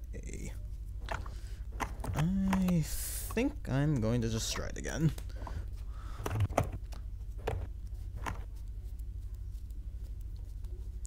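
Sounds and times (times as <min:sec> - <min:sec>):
low electrical hum: 0:00.0 - 0:11.0
cards clicking and tapping: 0:01.0 - 0:05.4, 0:06.2 - 0:10.7.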